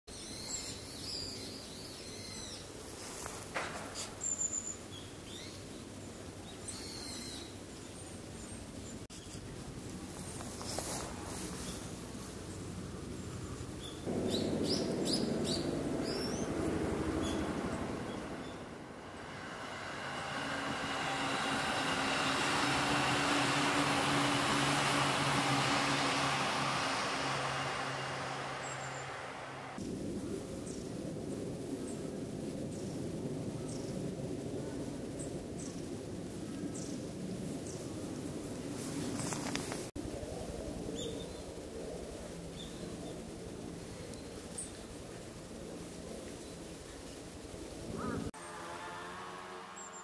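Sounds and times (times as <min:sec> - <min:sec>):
background hiss: 0:00.1 - 0:50.0
distant vehicle engine rumble: 0:10.0 - 0:29.8.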